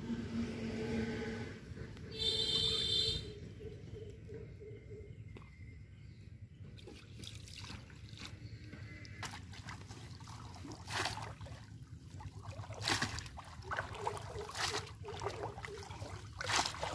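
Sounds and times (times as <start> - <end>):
low rumble: 0.0 - 6.8
muddy water splashing: 6.8 - 16.9
fish trap plunging into water: 9.2 - 16.9.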